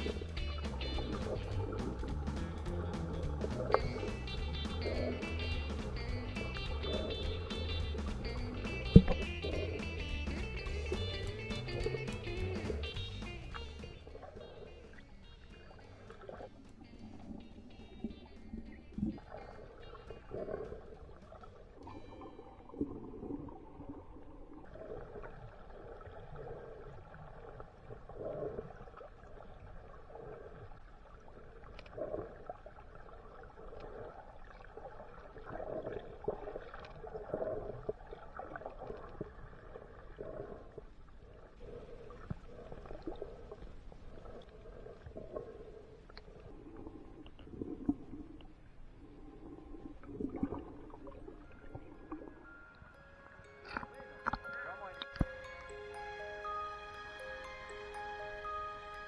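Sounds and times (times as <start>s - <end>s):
underwater gurgling and sloshing: 0.0s - 59.0s.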